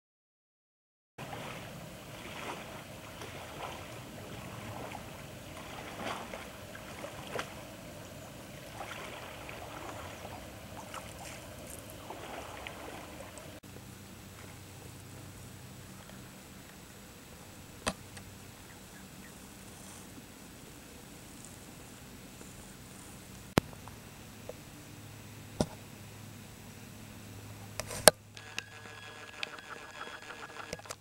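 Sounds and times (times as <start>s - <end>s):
paddle strokes splashing: 1.2s - 16.8s
water lapping: 1.2s - 23.6s.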